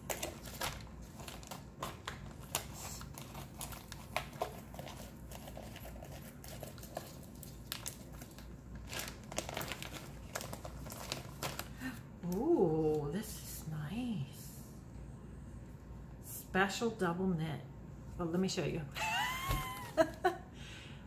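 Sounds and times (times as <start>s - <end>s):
wrapping crinkling and rustling: 0.0s - 13.1s.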